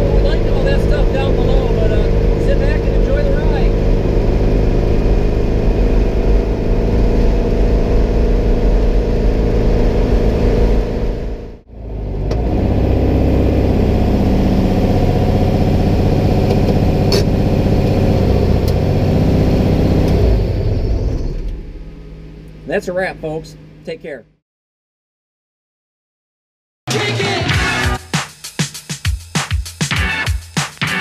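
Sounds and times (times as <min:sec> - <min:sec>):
car engine running: 0:00.0 - 0:24.2.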